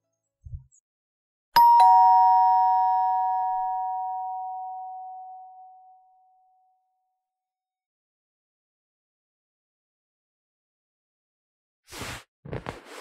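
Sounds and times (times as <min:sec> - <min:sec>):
two-tone doorbell chime: 0:01.6 - 0:06.8.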